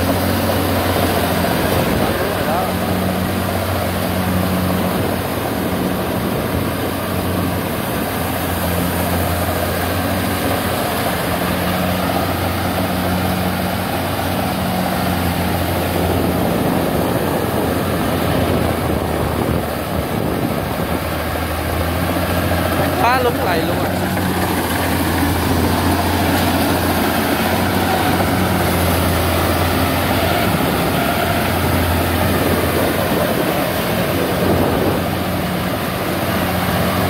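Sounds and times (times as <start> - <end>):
combine harvester engine humming: 0.0 - 37.0
threshing machinery turning: 0.0 - 37.0.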